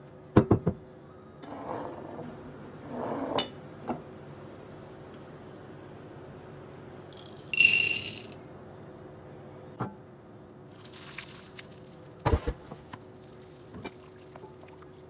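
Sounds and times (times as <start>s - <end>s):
bowl clinking on glass bowl: 7.2s - 8.4s
melted chocolate pouring: 7.5s - 8.4s.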